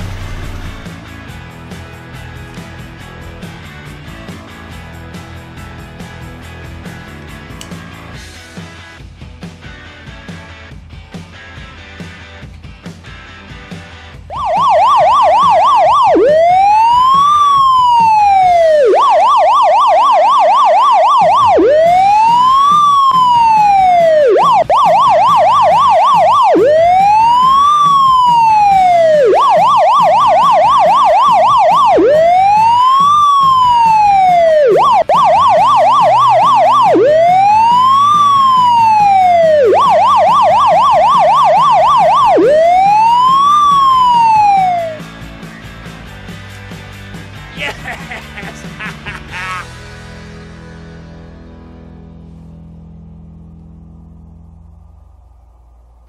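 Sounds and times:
emergency vehicle siren: 0:00.0 - 0:01.0, 0:14.3 - 0:45.2.

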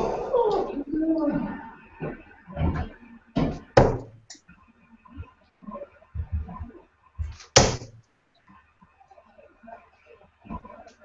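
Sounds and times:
darts thudding into dartboard: 0:07.6 - 0:08.0.

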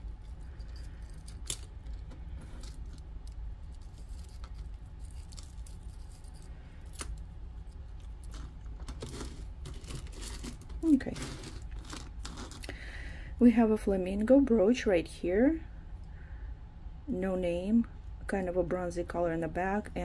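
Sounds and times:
metal jewelry clinking: 0:00.0 - 0:12.6
low steady hum: 0:00.0 - 0:20.0.

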